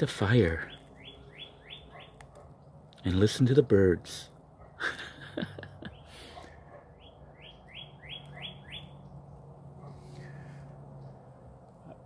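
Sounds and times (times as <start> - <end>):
bird singing descending notes: 0.5 - 2.2, 7.0 - 9.4.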